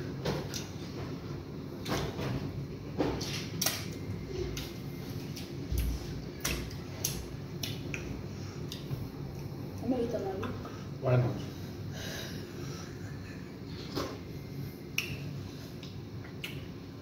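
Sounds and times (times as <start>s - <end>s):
chewing with wet mouth smacks: 3.2s - 9.8s, 14.9s - 16.8s.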